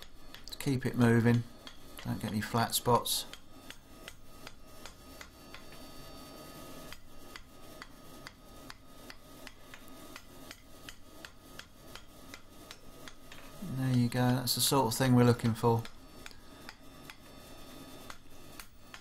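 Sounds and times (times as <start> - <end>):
hammer striking steel on anvil: 0.0 - 0.5, 1.2 - 2.5, 6.9 - 14.4.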